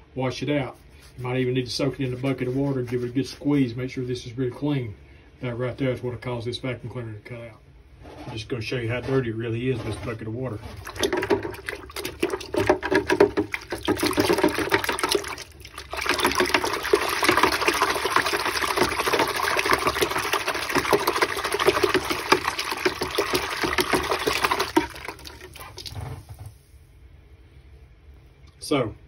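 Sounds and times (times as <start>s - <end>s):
water sloshing in a bucket: 8.3s - 26.8s.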